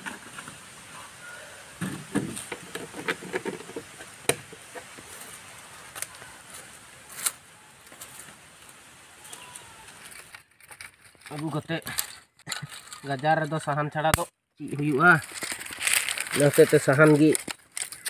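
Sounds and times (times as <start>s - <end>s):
plastic jerrycan knocks: 1.8s - 4.6s
footsteps on dry leaves: 4.8s - 13.4s, 14.7s - 18.0s.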